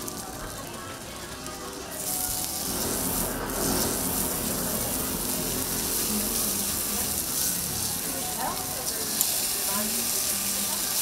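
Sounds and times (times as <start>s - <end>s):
food sizzling on griddle: 0.0s - 11.0s.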